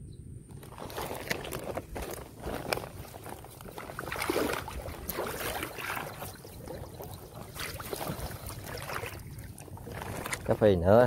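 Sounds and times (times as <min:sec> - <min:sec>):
water splashing and dripping: 0:02.5 - 0:10.7.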